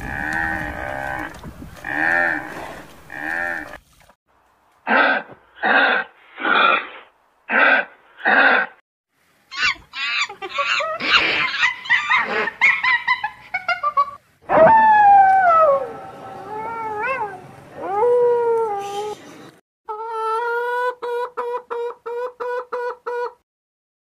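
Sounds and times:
long howls sliding down: 14.5 - 18.7.

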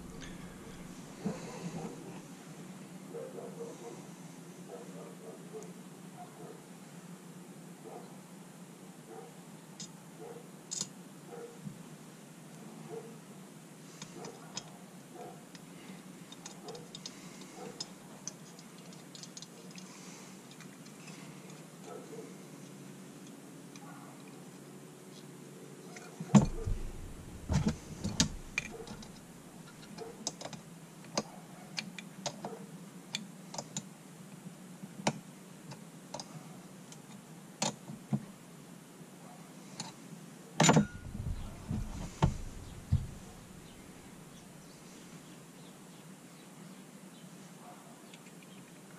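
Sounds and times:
heavier knocks: 0.0 - 1.1, 26.4 - 29.3, 40.8 - 44.4
metal parts clicking and tapping: 26.4 - 30.6, 40.6 - 44.2.

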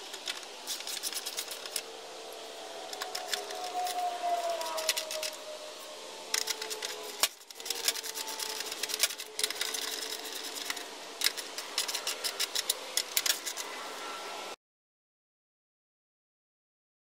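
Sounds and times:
ratchet clicking: 6.3 - 13.7.

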